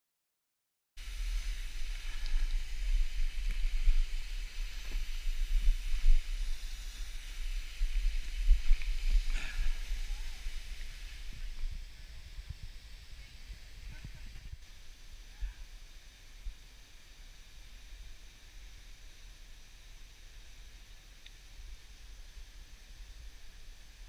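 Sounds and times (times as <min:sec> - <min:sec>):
faint hiss: 0:01.0 - 0:24.0
wind buffeting microphone: 0:01.2 - 0:14.7.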